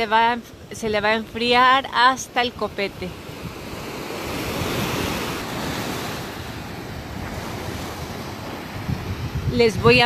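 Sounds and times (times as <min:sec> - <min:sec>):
small waves breaking on sand: 0:00.0 - 0:10.0
wind buffeting microphone: 0:02.5 - 0:10.0.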